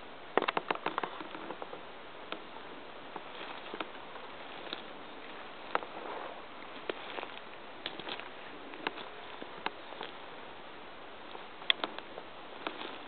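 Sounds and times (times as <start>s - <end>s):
steady background hiss: 0.0s - 13.0s
footsteps on dry twigs: 3.1s - 10.4s, 11.2s - 13.0s.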